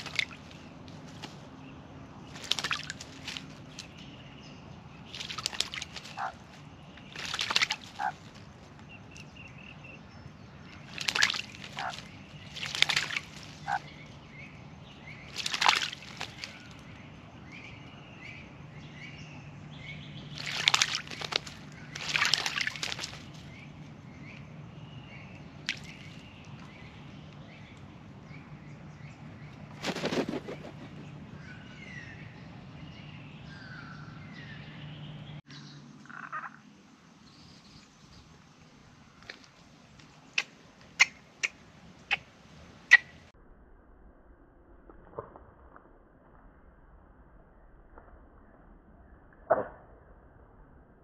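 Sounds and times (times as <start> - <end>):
bird splashing in water: 0.0 - 1.6, 2.2 - 4.1, 5.0 - 9.3, 10.6 - 13.9, 15.1 - 17.0, 20.3 - 23.7, 25.6 - 26.8, 29.7 - 31.2.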